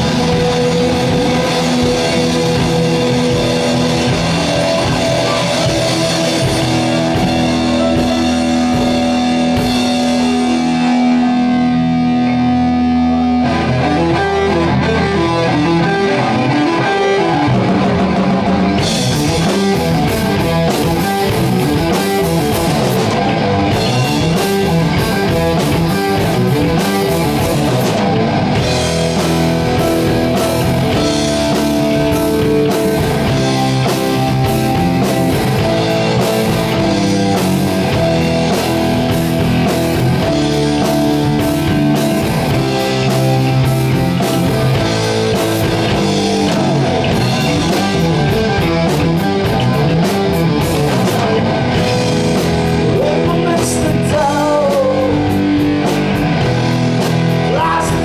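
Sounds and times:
steady drum beat: 0.0 - 12.1, 17.4 - 58.0
electric guitar: 0.0 - 58.0.

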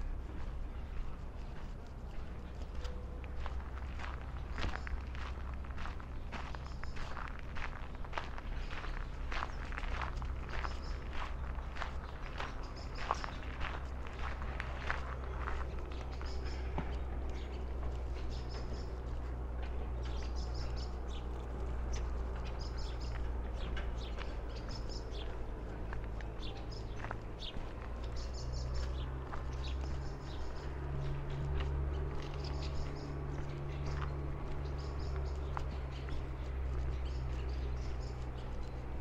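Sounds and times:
steady low hum: 0.0 - 39.0
small birds chirping: 0.1 - 39.0.

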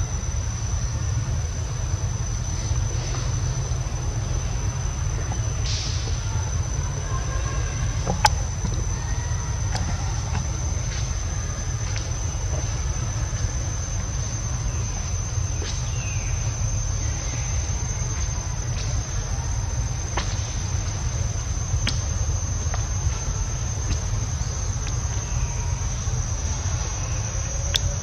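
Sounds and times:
high-pitched insect drone: 0.0 - 28.0
low rumble: 0.0 - 28.0.

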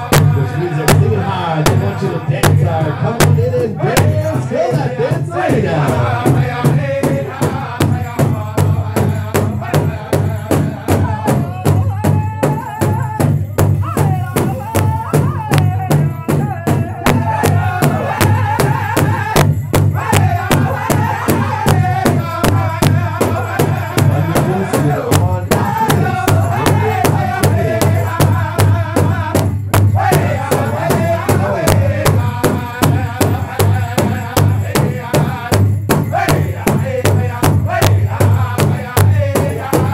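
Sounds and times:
large drum beaten in unison: 0.0 - 39.9
men singing together: 0.0 - 39.9.

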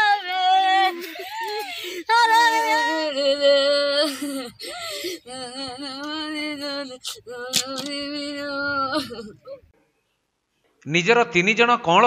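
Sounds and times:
woman wailing in grief: 0.6 - 9.6.

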